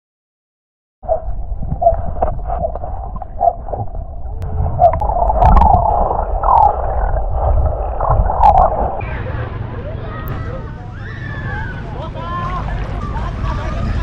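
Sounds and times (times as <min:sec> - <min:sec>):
underwater sloshing and gurgling: 0:01.0 - 0:09.7
deep rumble: 0:01.0 - 0:09.9.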